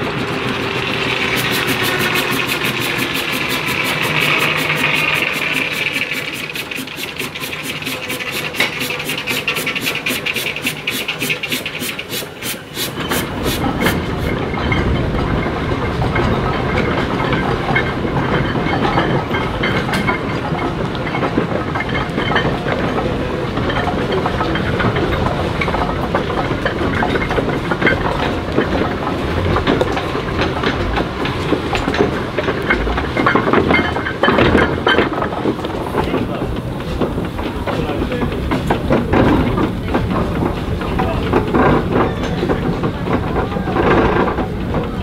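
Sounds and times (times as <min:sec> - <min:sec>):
steam hissing: 0:00.0 - 0:14.5
steam engine clattering: 0:00.0 - 0:45.0.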